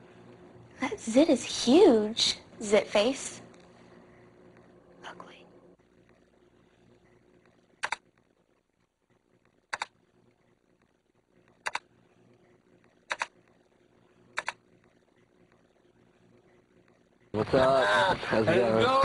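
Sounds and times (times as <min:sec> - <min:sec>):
faint low hum: 0:00.0 - 0:19.0
sharp double clicks: 0:07.8 - 0:08.0, 0:11.6 - 0:11.8, 0:13.1 - 0:13.3.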